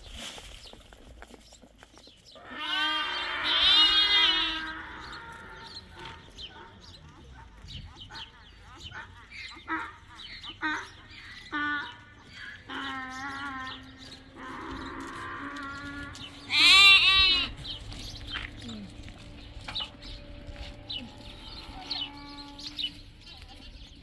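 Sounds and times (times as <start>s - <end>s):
sheep bleating: 2.4s - 6.2s, 12.7s - 17.8s.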